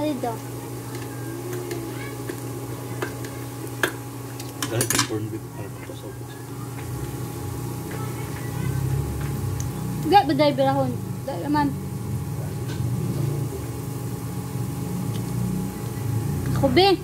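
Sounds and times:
steady low hum: 0:00.0 - 0:17.0
metal spoons clinking on pot: 0:04.6 - 0:05.2.

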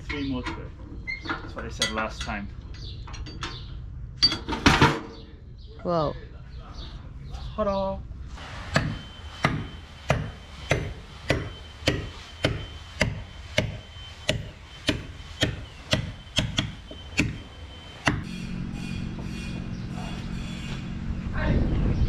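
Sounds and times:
wind: 0:00.0 - 0:22.0
low hum: 0:08.0 - 0:22.0
mallet striking caulking iron: 0:08.7 - 0:17.4, 0:18.0 - 0:18.4.

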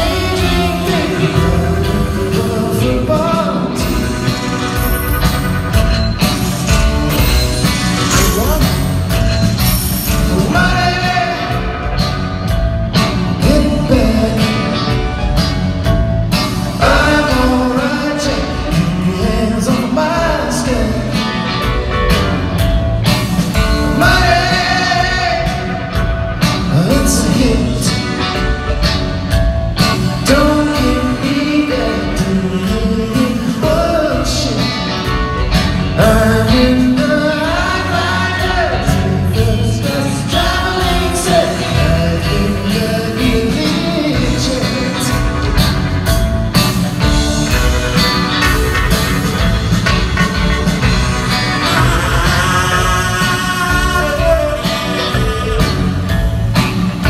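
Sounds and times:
person singing lead vocal: 0:00.0 - 0:05.0, 0:10.1 - 0:12.1, 0:13.3 - 0:15.3, 0:16.7 - 0:21.7, 0:23.6 - 0:28.4, 0:30.2 - 0:45.7, 0:51.2 - 0:56.5
live rock band playing: 0:00.0 - 0:57.0.

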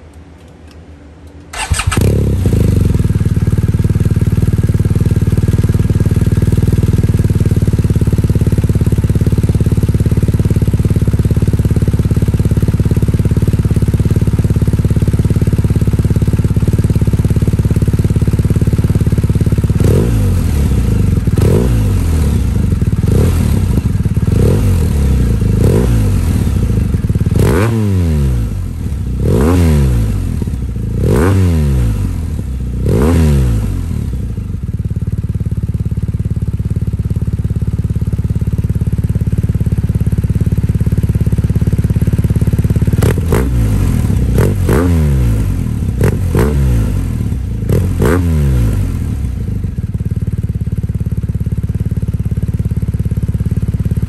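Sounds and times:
motorcycle engine throttle blips: 0:00.0 - 0:09.2
motorcycle engine idling: 0:01.0 - 0:54.0.

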